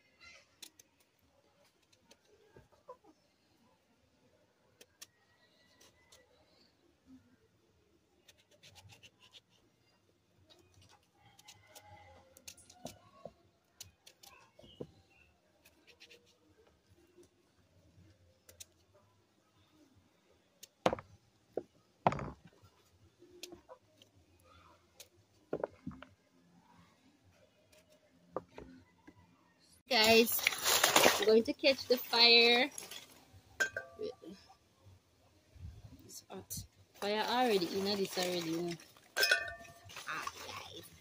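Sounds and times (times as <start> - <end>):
thumps: 20.8 - 22.6, 25.5 - 26.2.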